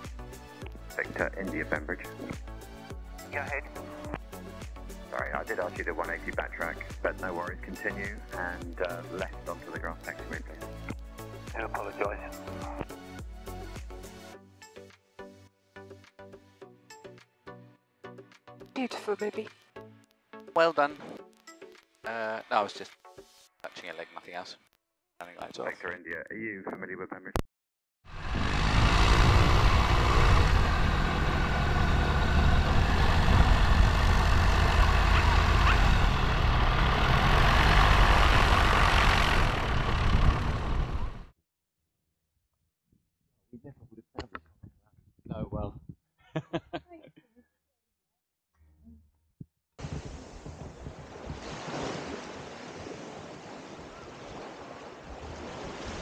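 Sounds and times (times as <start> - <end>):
wind rumbling on microphone: 28.1 - 41.2
light aircraft engine and propeller: 28.1 - 41.3
small waves washing on sand: 51.0 - 56.0.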